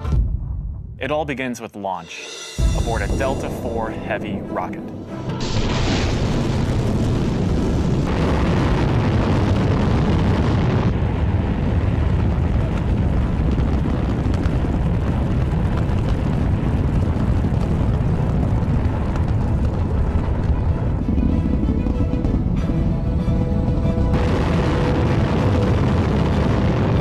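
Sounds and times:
rocket engines rumbling: 1.0 - 27.0
rocket exhaust hiss: 5.4 - 11.0.

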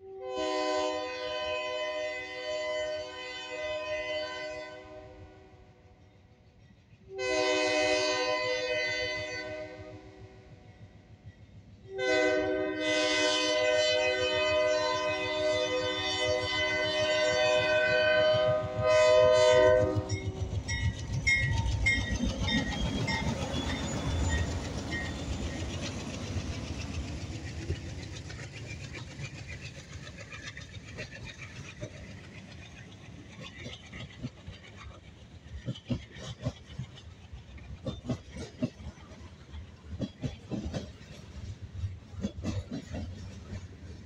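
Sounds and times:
locomotive air horn blasts: 0.0 - 5.6, 7.1 - 10.2, 11.9 - 20.2
train rumbling: 0.0 - 44.0
wheels clicking over rail joints: 14.8 - 44.0.

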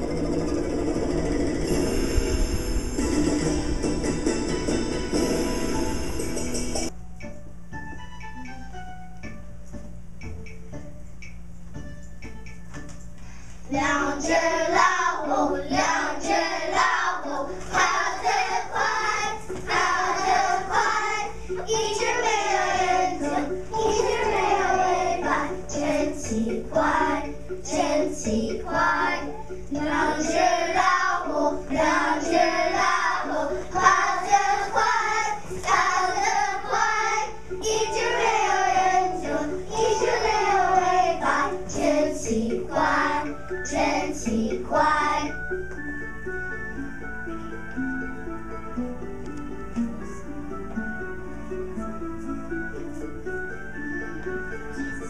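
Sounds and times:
children singing in unison: 13.7 - 45.4.

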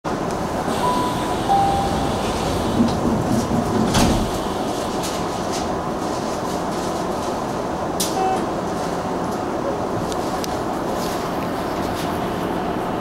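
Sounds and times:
steady background hum: 0.1 - 13.0
two-note falling chime: 0.8 - 2.6.

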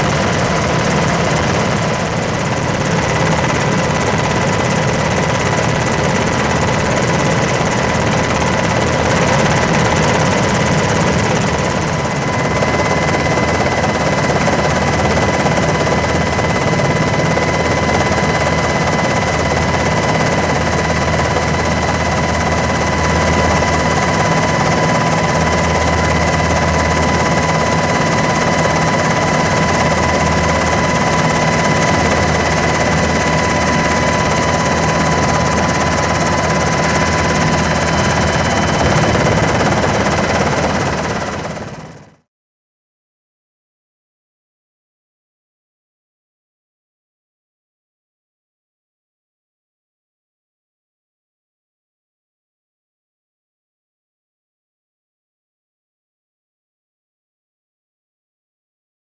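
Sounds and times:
helicopter rotor rumble: 0.0 - 42.3.

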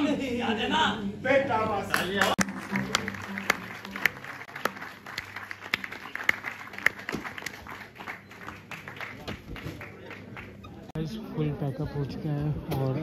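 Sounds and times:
audience applauding: 1.9 - 10.8.

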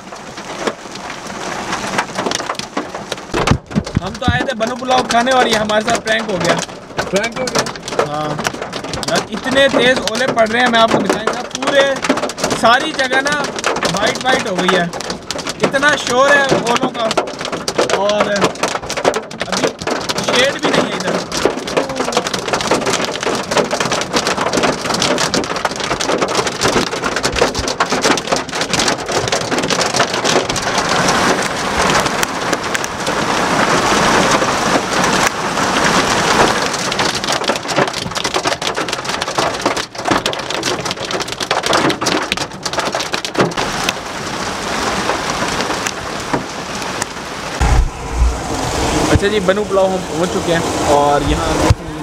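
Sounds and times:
hail clattering on car and street: 0.0 - 47.6, 49.1 - 52.0
rain: 0.0 - 52.0
low thumps: 3.2 - 4.8, 47.5 - 49.7.

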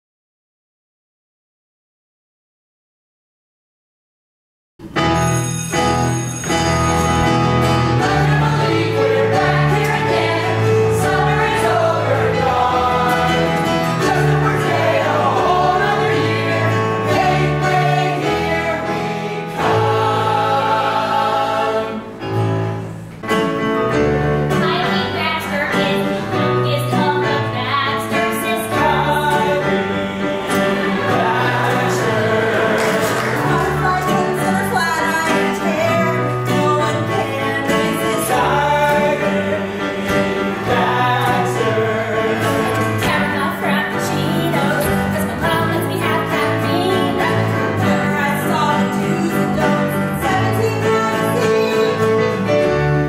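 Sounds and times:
keyboard accompaniment: 4.8 - 53.0
voices singing together: 7.8 - 22.4, 28.1 - 52.4.

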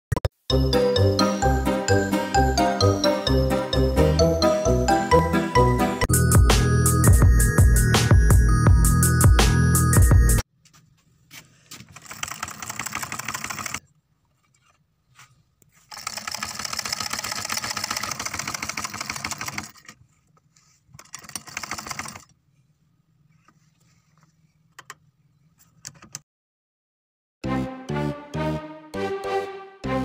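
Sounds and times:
sewing machine running: 15.9 - 19.8, 21.1 - 22.3.

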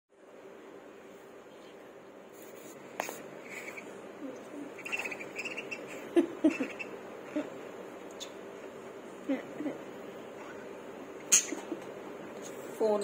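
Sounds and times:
budgerigars chirping: 4.8 - 7.0.

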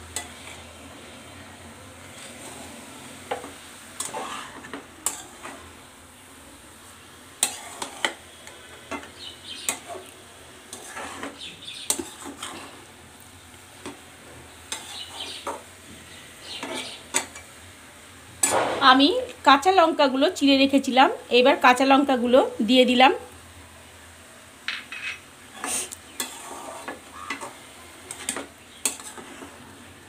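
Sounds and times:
metal spatula scraping a metal pan: 0.2 - 0.7, 2.1 - 5.7, 7.4 - 10.1, 10.7 - 12.8, 14.7 - 15.6, 16.4 - 17.4, 24.8 - 29.6.

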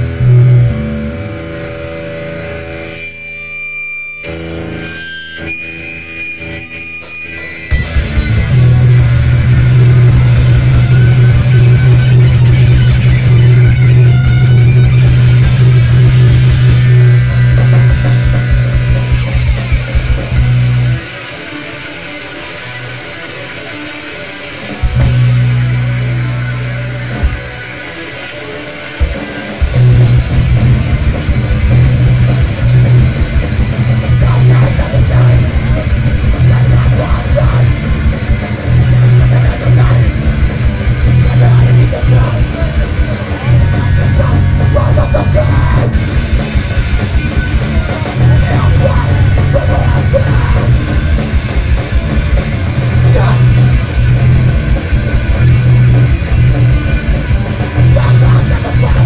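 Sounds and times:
bass guitar line: 0.0 - 59.0
electric guitar: 0.0 - 59.0
drum kit: 6.2 - 59.0.

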